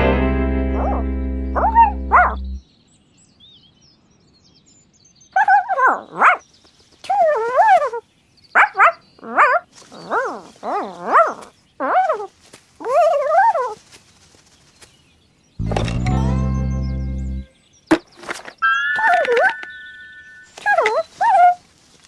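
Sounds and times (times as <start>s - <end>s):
music chord: 0.0s - 2.6s, 15.6s - 17.6s
cartoon animal yelps and whines: 5.4s - 6.4s, 7.1s - 8.0s, 8.6s - 13.8s, 20.5s - 21.6s.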